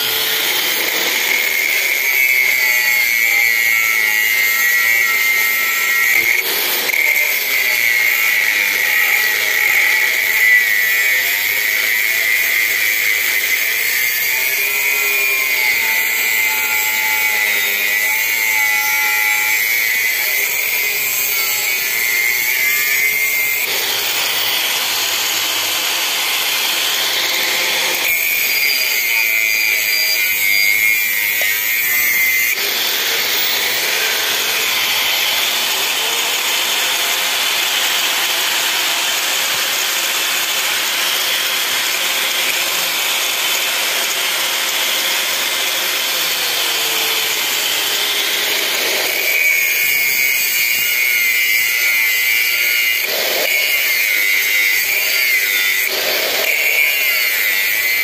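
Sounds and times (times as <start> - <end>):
angle grinder cutting metal: 0.0 - 58.0.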